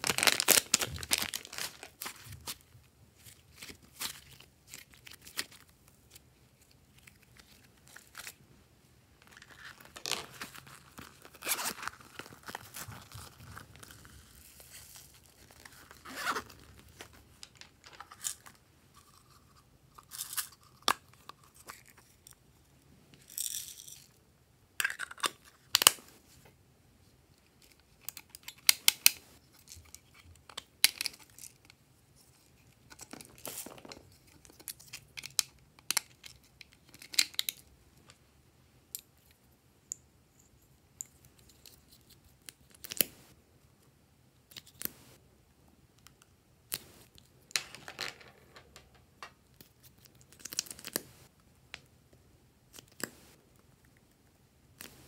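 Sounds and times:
plastic crinkling and scraping: 0:00.0 - 0:05.6, 0:09.2 - 0:19.4.

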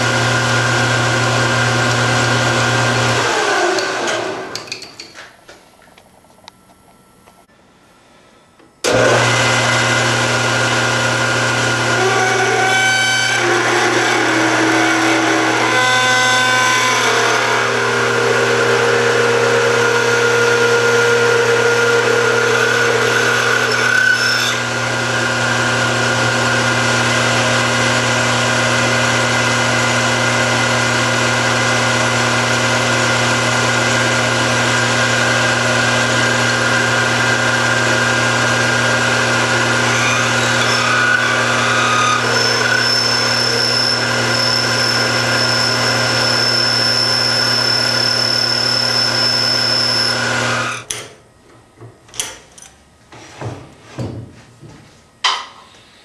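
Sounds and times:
metal lathe running: 0:00.0 - 0:05.0, 0:08.9 - 0:50.9
drill boring into metal: 0:08.9 - 0:50.9.

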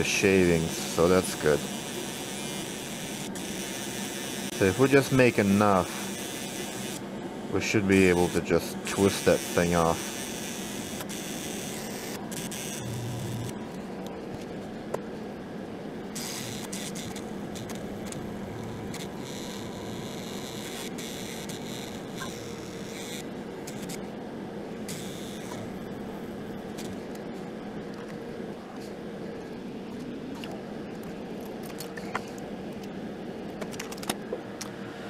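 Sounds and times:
rotary tool grinding metal: 0:08.1 - 0:13.6, 0:16.2 - 0:24.0.

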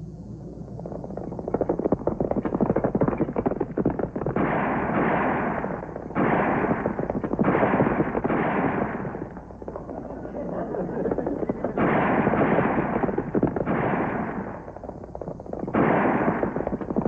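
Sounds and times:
rapid gunshots: 0:01.3 - 0:17.0
loud gun blasts: 0:04.0 - 0:09.7, 0:11.0 - 0:17.0.

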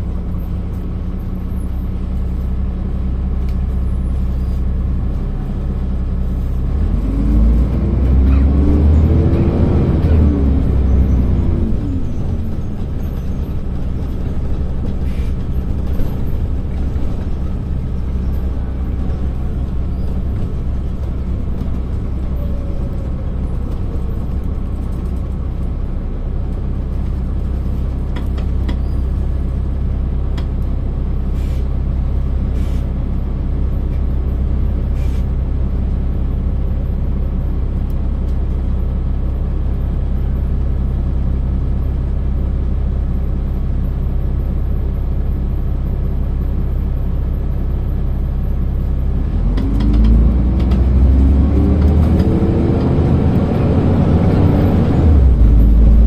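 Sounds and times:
diesel bus engine: 0:00.0 - 0:56.0
air brake hisses: 0:31.3 - 0:31.7, 0:32.5 - 0:32.9, 0:35.0 - 0:35.3.

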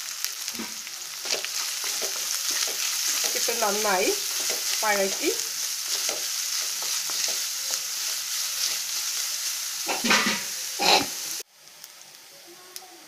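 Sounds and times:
vegetables sizzling in hot oil: 0:00.0 - 0:13.0
spatula scraping a pan: 0:00.6 - 0:11.2.

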